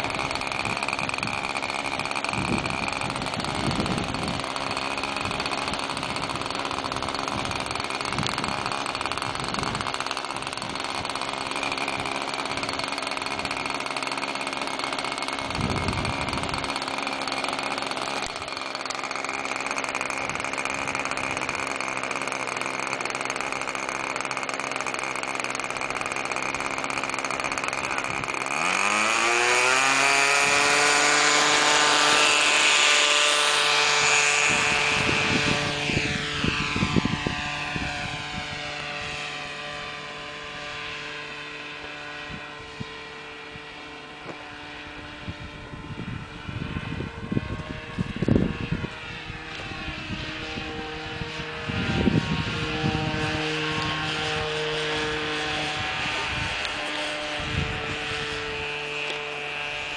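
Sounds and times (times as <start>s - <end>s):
model airplane engine: 0.0s - 59.9s.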